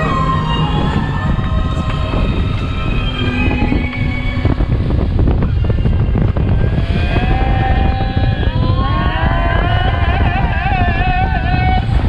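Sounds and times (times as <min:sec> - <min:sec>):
high wavering whistle: 0:00.0 - 0:06.3
bow wave rushing: 0:00.0 - 0:06.9
wind buffeting microphone: 0:00.0 - 0:12.0.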